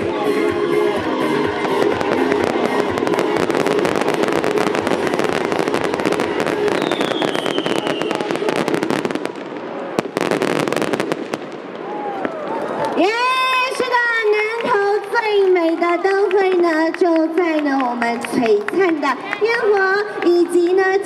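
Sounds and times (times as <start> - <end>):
fireworks crackling: 0.0 - 21.0
falling firework whistle: 1.6 - 9.1
sharp firework crack: 1.6 - 12.8.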